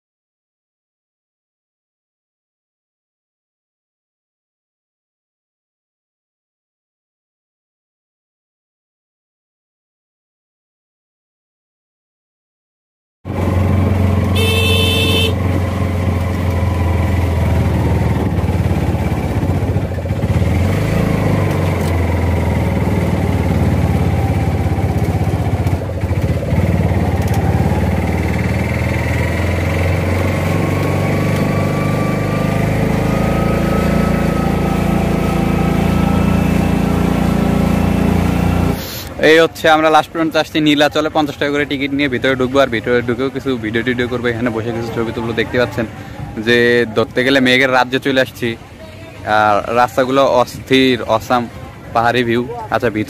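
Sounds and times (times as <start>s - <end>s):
small engine running: 13.3s - 15.4s, 16.0s - 38.9s.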